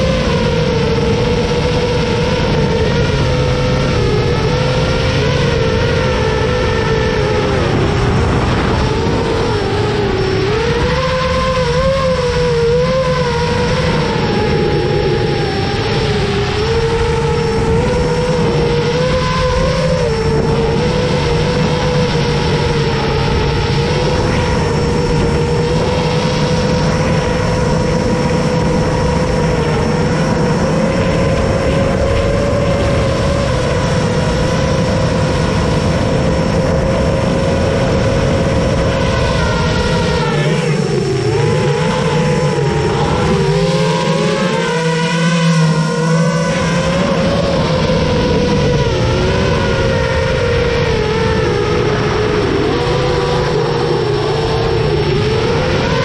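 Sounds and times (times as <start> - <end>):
quadcopter motors whining: 0.0 - 56.0.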